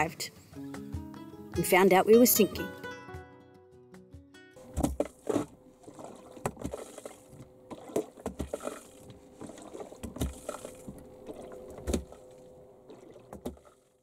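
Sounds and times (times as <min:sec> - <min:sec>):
hand pump knocks and clunks: 0:04.6 - 0:12.2, 0:13.3 - 0:13.7
faint steady hum: 0:04.6 - 0:13.8.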